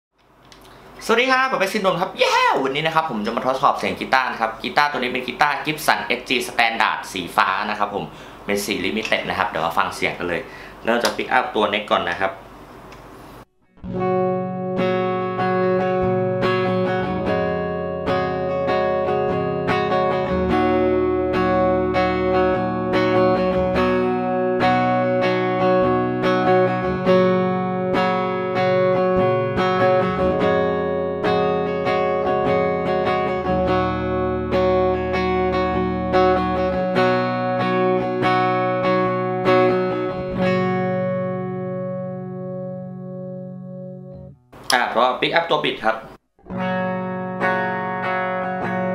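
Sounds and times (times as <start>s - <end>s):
clean electric guitar chords: 13.6s - 44.4s, 46.4s - 48.9s.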